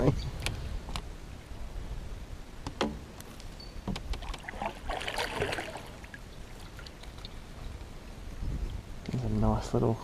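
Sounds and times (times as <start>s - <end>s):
paddle swishing through water: 4.0s - 7.4s
water splash: 4.2s - 7.3s.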